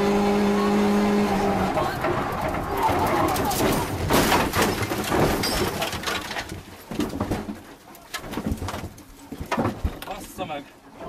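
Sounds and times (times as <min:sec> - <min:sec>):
car scraping through undergrowth: 0:01.0 - 0:06.5
knocks and rustling: 0:01.7 - 0:10.4.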